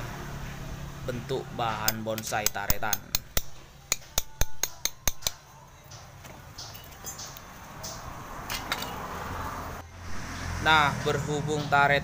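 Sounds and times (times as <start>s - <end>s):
mallet striking chisel on wood: 1.8s - 5.4s.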